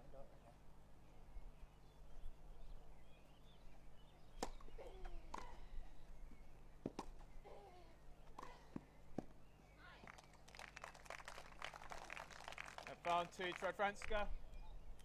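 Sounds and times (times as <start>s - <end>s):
tennis ball struck by rackets: 4.3s - 5.6s, 6.8s - 7.3s, 8.3s - 9.4s.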